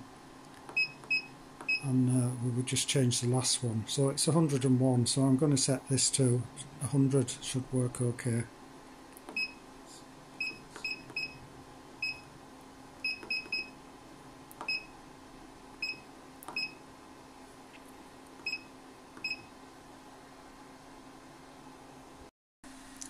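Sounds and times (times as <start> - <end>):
steady low hum: 0.0 - 23.0
keypad beeps: 0.7 - 1.8, 9.3 - 9.6, 10.4 - 11.4, 12.0 - 12.3, 13.0 - 13.8, 14.6 - 14.9, 15.8 - 16.8, 18.4 - 19.5.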